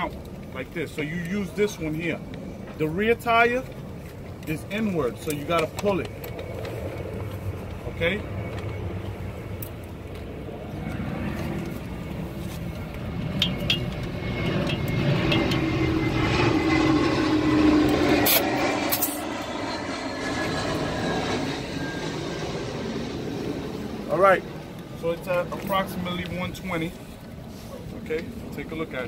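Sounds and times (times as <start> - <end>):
vehicle engine rumbling: 2.1 - 28.6.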